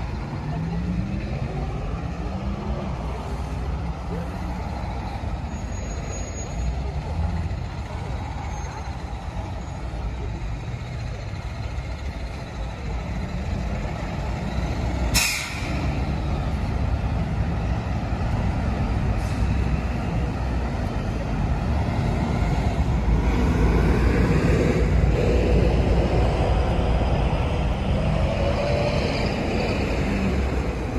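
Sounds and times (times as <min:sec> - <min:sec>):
traffic rumble: 0:00.0 - 0:30.9
bus air brakes hissing: 0:15.1 - 0:16.0, 0:19.0 - 0:19.8.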